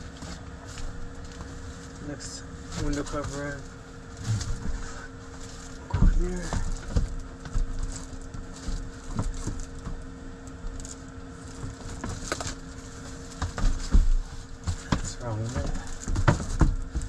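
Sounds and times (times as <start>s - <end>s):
air heater humming: 0.0s - 17.0s
padded covers rustling and knocking: 10.7s - 17.0s.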